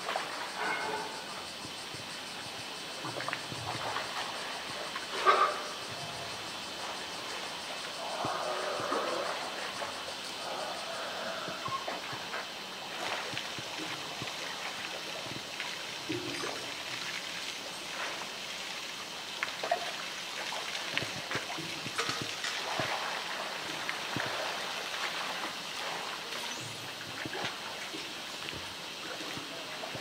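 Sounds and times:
water sloshing and trickling: 0.0 - 1.3, 3.0 - 10.7, 11.4 - 30.0
small splashes and drips: 11.9 - 30.0.

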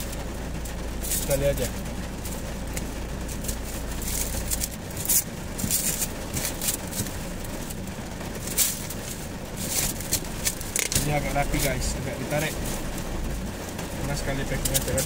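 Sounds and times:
plastic stretch wrap rustling: 0.0 - 15.0
plastic film crinkles: 1.0 - 13.2.

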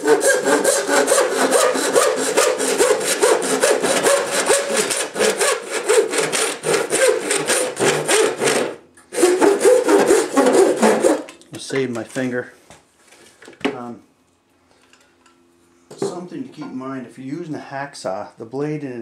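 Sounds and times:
handsaw cutting plastic pipe: 0.0 - 11.4.

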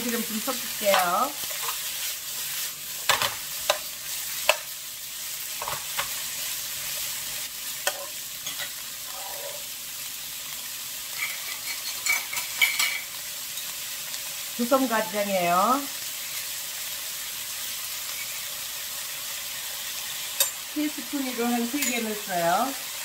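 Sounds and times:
stems sizzling in oil: 0.0 - 23.0
metal spoon scraping a pan: 0.8 - 4.7, 7.8 - 9.7, 11.1 - 13.8, 18.1 - 18.5, 21.7 - 22.2.

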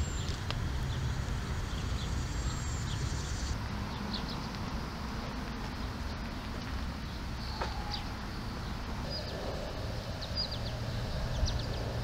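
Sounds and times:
bird chirps: 7.1 - 11.9.

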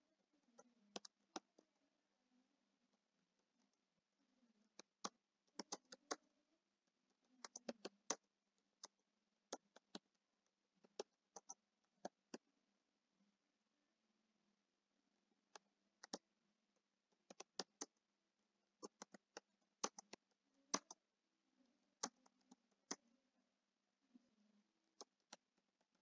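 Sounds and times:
computer keyboard typing: 4.8 - 6.2, 7.4 - 8.2, 9.5 - 10.1, 10.8 - 12.4, 16.0 - 16.2, 17.2 - 17.9, 18.8 - 21.0, 22.0 - 23.0.

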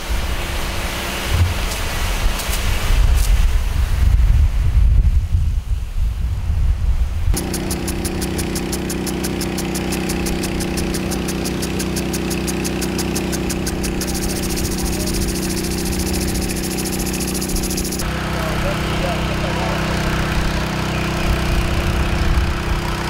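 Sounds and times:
fire hose spraying water: 0.0 - 3.9
engine running: 7.3 - 23.0
lawn sprinkler ticking: 7.4 - 18.0.

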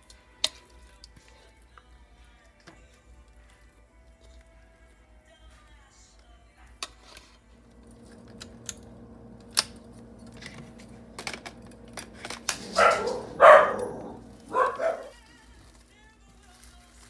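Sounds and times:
low steady hum: 7.6 - 15.1
dog barking: 12.5 - 15.2.

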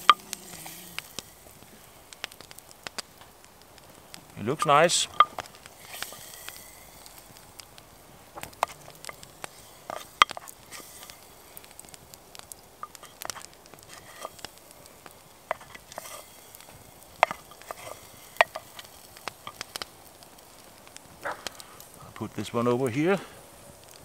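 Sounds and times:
wooden spoon scraping a pot: 0.0 - 2.6, 5.1 - 7.6, 8.4 - 20.6
campfire crackling: 0.0 - 24.0.

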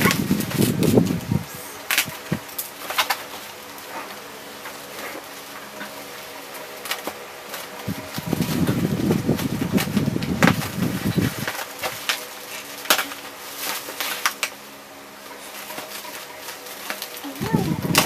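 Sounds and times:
bubble wrap rustling and crinkling: 0.0 - 18.0.

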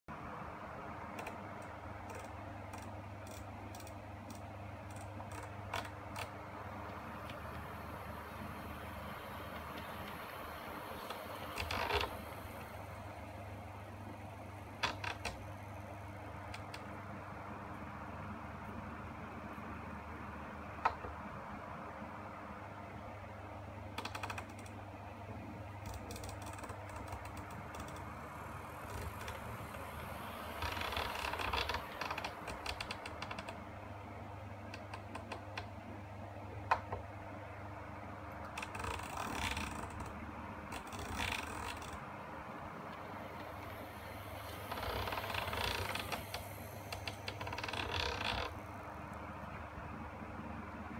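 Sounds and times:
model locomotive hum: 6.5 - 13.6, 27.2 - 33.0, 42.7 - 48.7.

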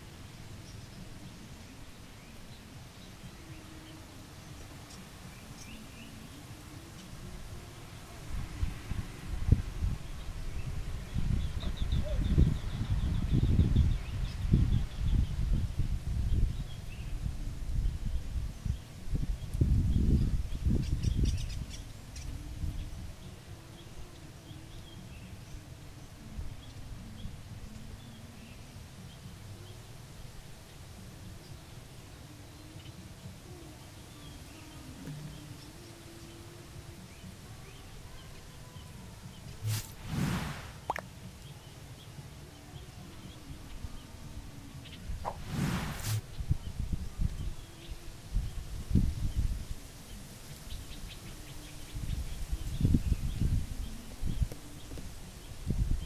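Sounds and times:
faint bird chirps: 9.8 - 18.9.

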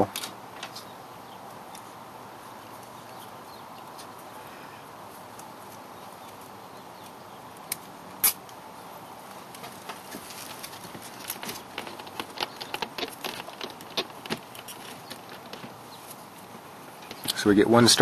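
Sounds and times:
steady background hiss: 0.0 - 18.0
small clicks and taps: 10.9 - 15.7.

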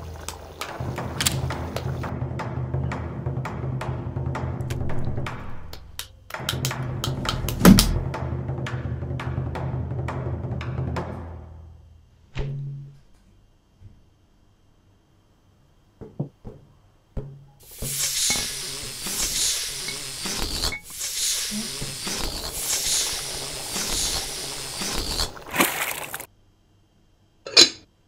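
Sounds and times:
pulsing hissing noise: 0.0 - 2.1, 17.6 - 26.3.

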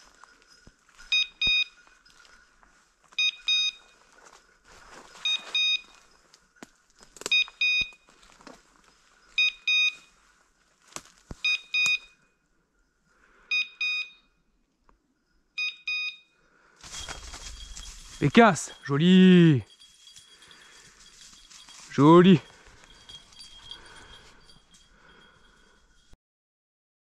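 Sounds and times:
beeper collar double beeps: 1.1 - 1.8, 3.2 - 3.9, 5.2 - 6.0, 7.3 - 8.1, 9.4 - 10.1, 11.4 - 12.2, 13.5 - 14.4, 15.6 - 16.3
dry leaves rustling: 3.8 - 7.3, 8.1 - 9.3, 10.1 - 11.4, 16.8 - 18.9, 19.7 - 24.5.

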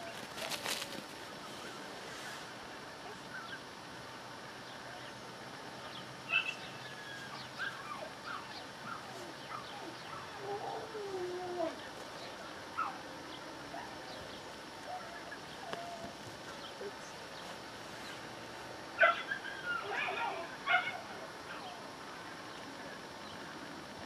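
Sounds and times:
dog yipping barks: 19.0 - 21.0.

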